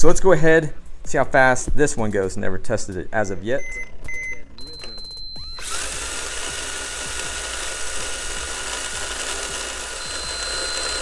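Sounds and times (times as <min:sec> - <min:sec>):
toy car electric motor whirring: 0:05.4 - 0:11.0.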